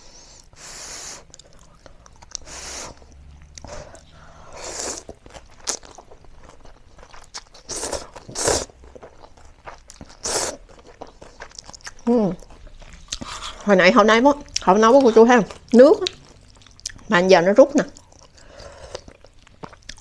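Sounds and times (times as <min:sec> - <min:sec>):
chewing: 0:01.2 - 0:13.7, 0:14.4 - 0:17.1, 0:17.9 - 0:20.0
person slurping noodles: 0:02.4 - 0:03.1, 0:03.7 - 0:05.8, 0:07.6 - 0:08.8, 0:10.1 - 0:10.6.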